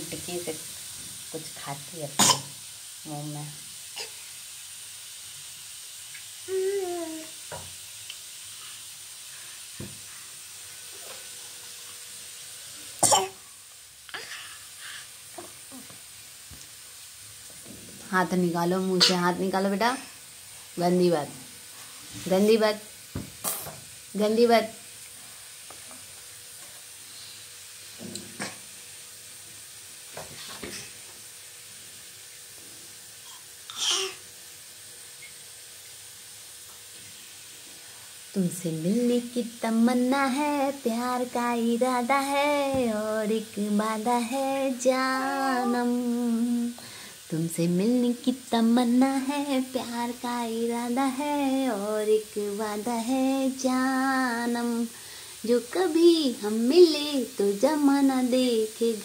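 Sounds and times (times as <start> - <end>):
faint steady hiss: 0.0 - 59.0
person coughing: 2.2 - 2.5, 13.0 - 13.4.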